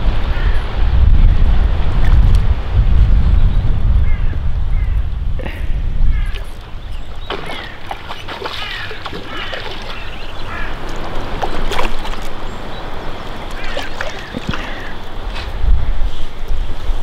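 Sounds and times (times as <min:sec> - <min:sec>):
wind: 0:00.0 - 0:17.0
birds chirping: 0:03.2 - 0:17.0
river water rushing: 0:06.6 - 0:15.8.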